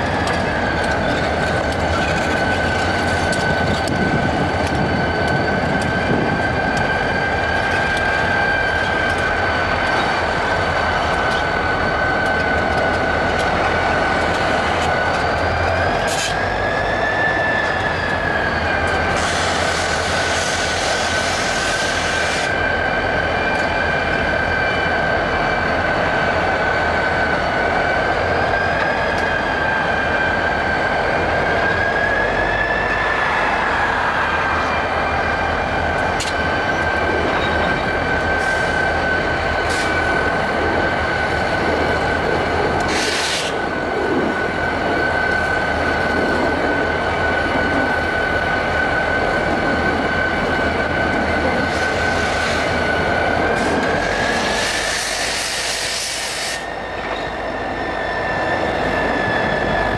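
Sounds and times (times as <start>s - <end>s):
locomotive whine: 0.0s - 59.9s
air hiss: 42.9s - 43.6s, 54.1s - 56.6s.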